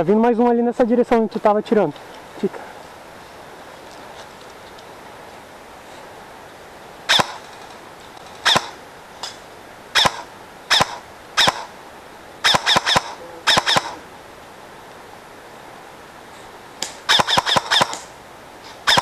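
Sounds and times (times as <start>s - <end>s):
steady hiss: 0.0s - 19.0s
airsoft gun shots: 7.1s - 7.4s, 8.4s - 8.8s, 10.0s - 11.7s, 12.4s - 14.0s, 16.8s - 18.1s.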